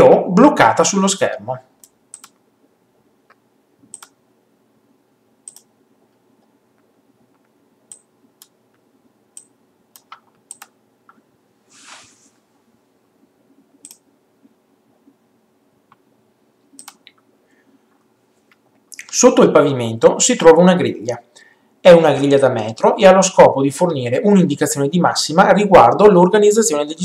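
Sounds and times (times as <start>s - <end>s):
computer mouse clicks: 1.8s - 2.4s, 3.3s - 4.2s, 5.4s - 5.7s, 7.3s - 8.8s, 9.4s - 11.2s, 13.8s - 14.0s, 16.7s - 17.2s.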